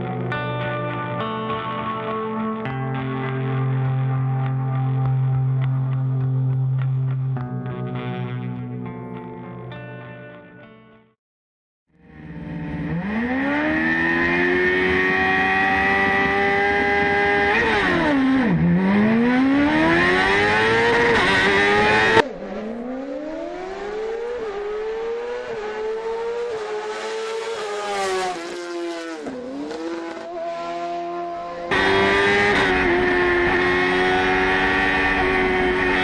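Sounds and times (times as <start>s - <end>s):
car accelerating through upshifts: 12.1s - 36.0s
racing car engine revving: 12.1s - 36.0s.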